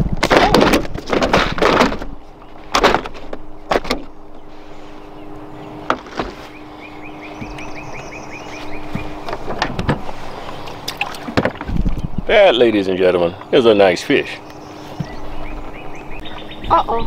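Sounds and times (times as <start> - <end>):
clattering and knocks in boat: 0.0 - 4.2, 5.8 - 6.4, 8.8 - 12.1
steady low hum: 0.0 - 17.0.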